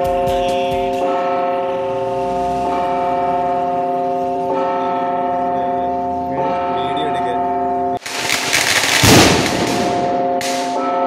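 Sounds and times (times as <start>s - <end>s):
church bell ringing: 0.0s - 8.0s, 9.8s - 11.0s.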